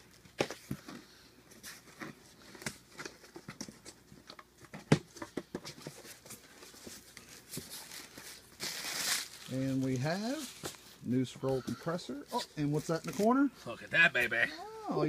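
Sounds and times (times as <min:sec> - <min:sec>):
plastic wrapping rustling: 0:05.7 - 0:11.6, 0:12.3 - 0:13.7.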